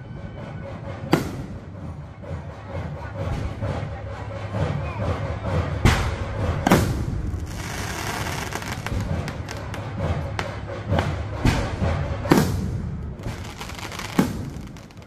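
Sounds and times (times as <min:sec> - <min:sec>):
fireworks crackling and popping: 0:07.2 - 0:09.8, 0:12.3 - 0:15.0
fireworks bangs: 0:12.3 - 0:15.0.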